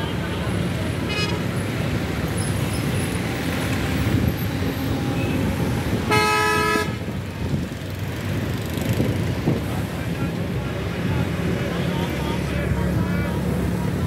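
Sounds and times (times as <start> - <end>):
bus engines idling and traffic: 0.0 - 14.0
vehicle horn blast: 6.0 - 7.0.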